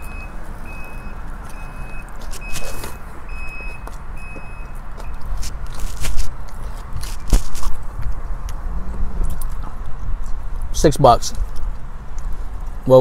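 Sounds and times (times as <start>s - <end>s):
high electronic warning beep: 0.0s - 5.3s
low rumble: 7.8s - 10.8s.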